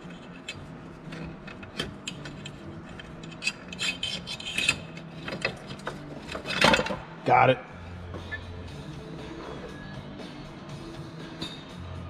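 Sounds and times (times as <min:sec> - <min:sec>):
metal clicks and scrapes: 0:00.0 - 0:07.0.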